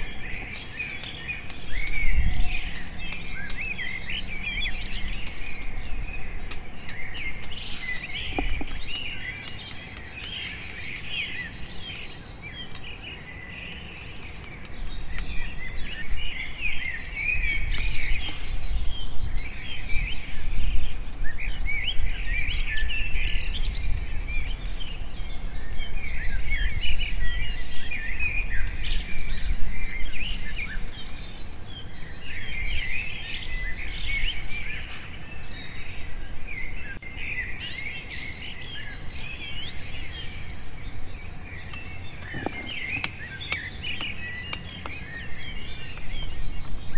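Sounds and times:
many birds chirping: 0.0 - 46.9.

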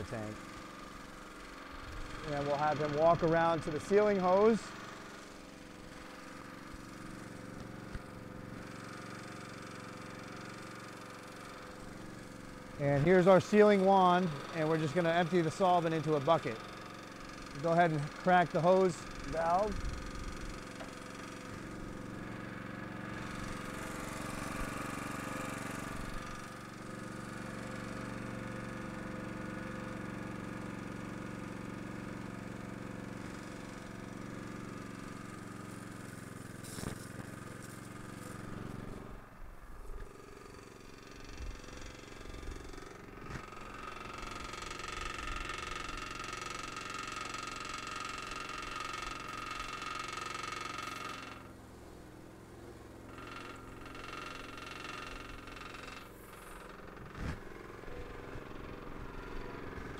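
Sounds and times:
small gasoline engine running: 0.0 - 59.9.

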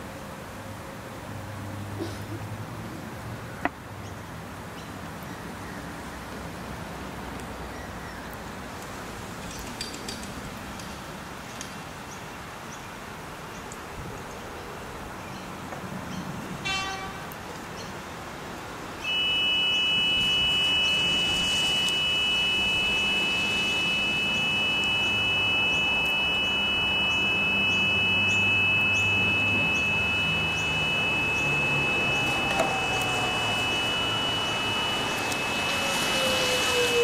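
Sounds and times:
electric train whine: 18.9 - 37.0
two-note crossing alarm tone: 19.0 - 37.0.

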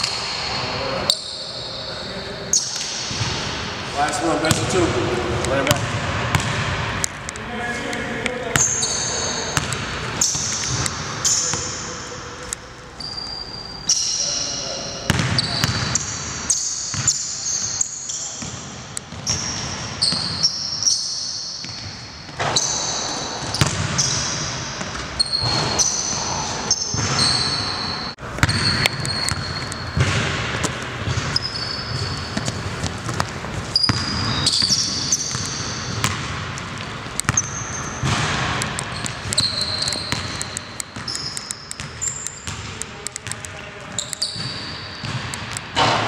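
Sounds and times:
sneaker squeaks: 0.0 - 6.6, 8.4 - 45.8
basketball bouncing on wooden floor: 5.7 - 6.8, 15.1 - 16.0, 23.5 - 24.2, 28.4 - 36.5, 37.1 - 40.4, 44.3 - 46.0.

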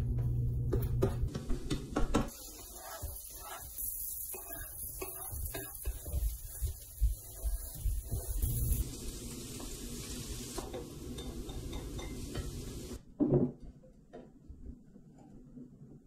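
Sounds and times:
vegetables sizzling in frying pan: 2.3 - 13.0.

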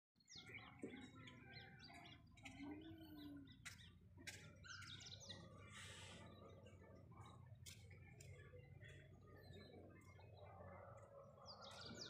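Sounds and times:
small birds chirping: 0.2 - 12.0.

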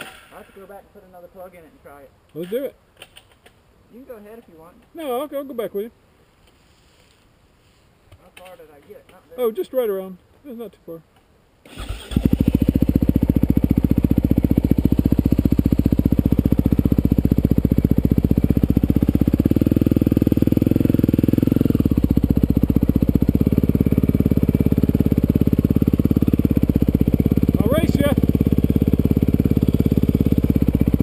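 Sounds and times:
dirt bike engine running: 11.8 - 31.0.

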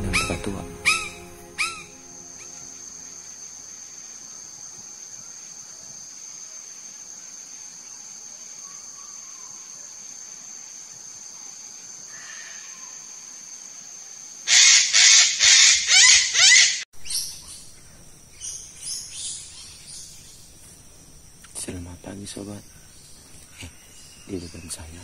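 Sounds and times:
harsh bird calls: 0.0 - 2.0
insects droning: 0.0 - 25.0.

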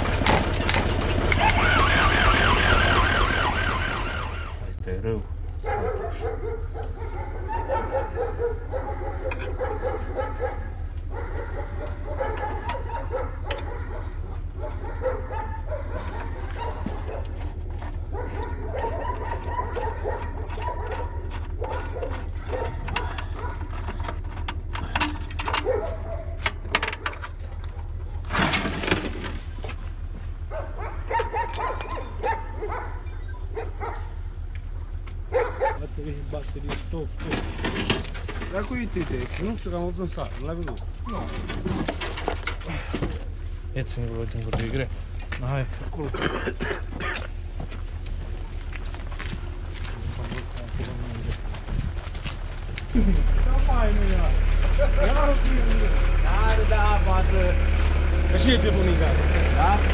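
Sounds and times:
steady low hum: 2.9 - 59.9
dog whining: 5.9 - 10.5, 18.2 - 23.6.

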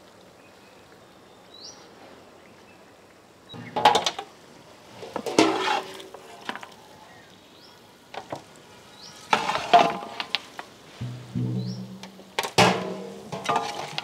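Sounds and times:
low steady sizzle: 0.0 - 14.0
spatula scraping pan: 5.3 - 6.0.

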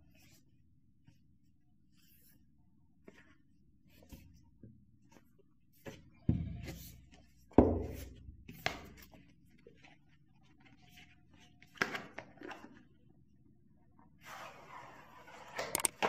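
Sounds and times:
sharp knocks on cardboard box: 7.6 - 8.2.

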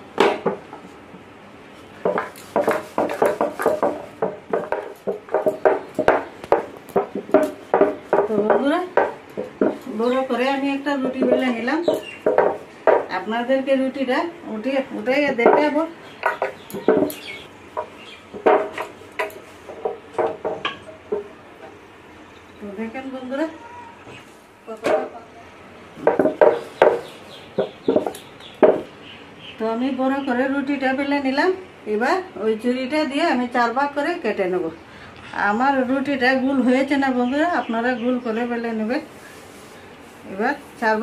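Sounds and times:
rolling pin knocking on board: 2.0 - 9.9, 11.0 - 13.2, 15.3 - 17.2, 17.8 - 21.4, 26.0 - 28.9.

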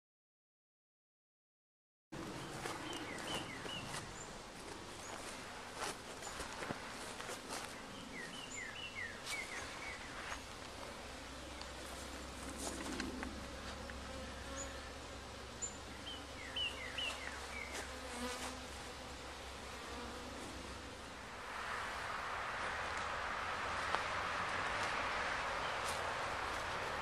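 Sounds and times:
bees buzzing: 2.2 - 27.0
bird chirping: 2.3 - 5.4, 7.6 - 10.5, 15.6 - 17.8.

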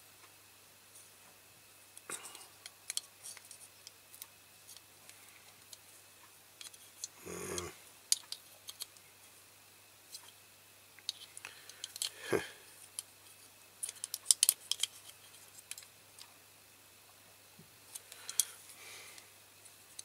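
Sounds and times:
short voice sound: 7.2 - 7.8.

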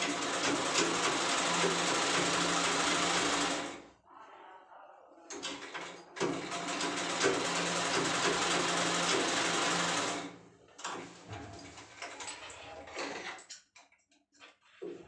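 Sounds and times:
sewing machine stitching: 0.0 - 3.8, 5.4 - 10.4.

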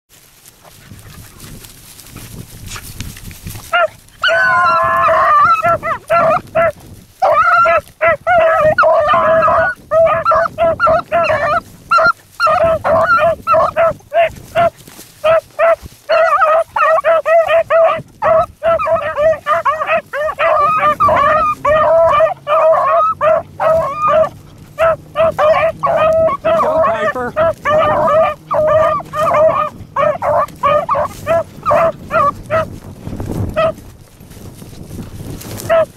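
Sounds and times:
hounds baying: 0.5 - 35.9.

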